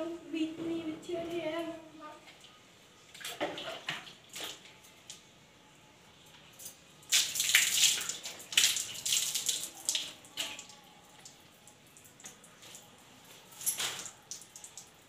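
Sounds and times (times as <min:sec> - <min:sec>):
water splashing on concrete floor: 0:03.1 - 0:05.2, 0:07.1 - 0:11.4.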